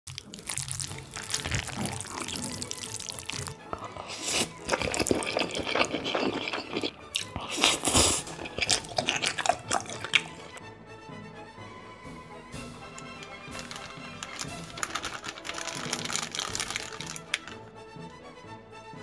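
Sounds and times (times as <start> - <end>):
slurping noodles: 0.1 - 10.6, 12.9 - 17.6
chopsticks lifting noodles: 0.2 - 10.6
wet clicks: 12.9 - 17.6.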